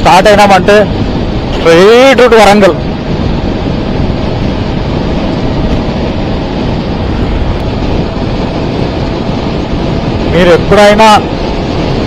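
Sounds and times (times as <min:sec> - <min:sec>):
road and engine noise: 0:00.0 - 0:12.0
wind rushing over microphone: 0:00.0 - 0:12.0.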